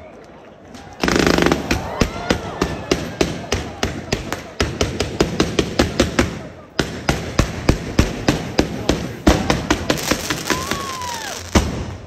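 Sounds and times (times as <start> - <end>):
fireworks banging: 0.8 - 12.0
descending firework whistle: 9.2 - 11.6.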